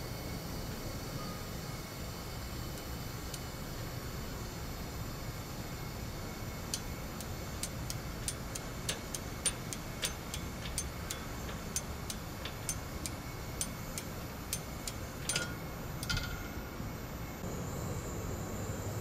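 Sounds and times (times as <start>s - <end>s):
low steady hum: 0.0s - 19.0s
light sharp ticking: 6.7s - 16.2s
metallic clinks with ring: 7.6s - 16.7s.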